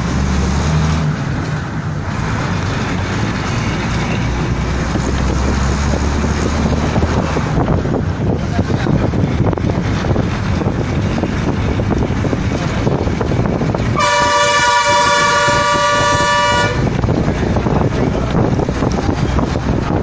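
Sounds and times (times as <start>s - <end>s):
wind and road rumble: 0.0s - 20.0s
vehicle horn blast: 14.0s - 17.0s.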